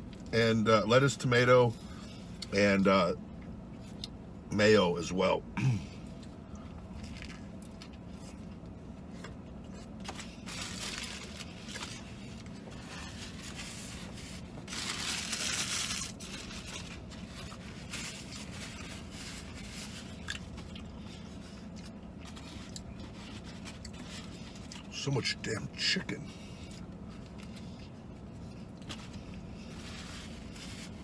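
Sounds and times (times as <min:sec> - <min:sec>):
steady low hum: 0:00.0 - 0:31.0
paper napkins rustling: 0:09.8 - 0:20.2, 0:28.9 - 0:31.0.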